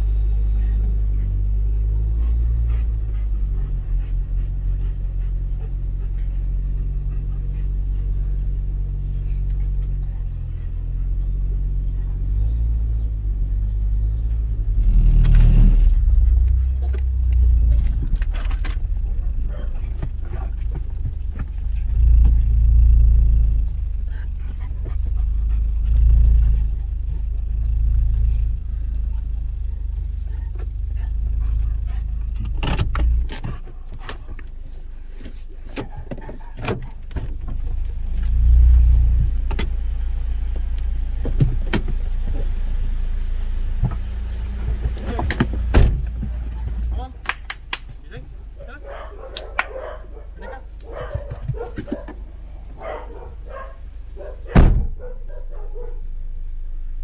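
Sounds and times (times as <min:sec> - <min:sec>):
car engine rumble and road noise: 0:00.0 - 0:57.0
metallic jingling and clicks: 0:15.2 - 0:23.5, 0:24.6 - 0:34.7, 0:41.9 - 0:55.9.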